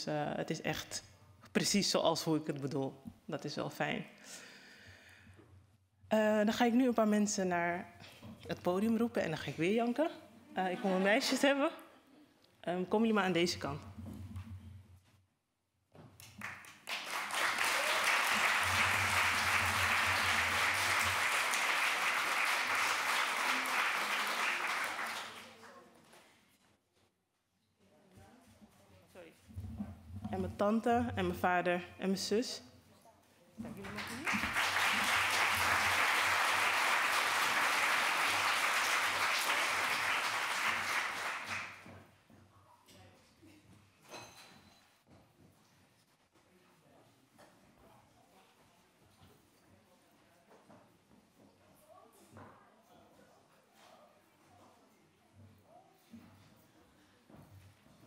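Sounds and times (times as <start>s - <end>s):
large crowd applauding: 16.3s - 25.7s, 33.8s - 41.9s.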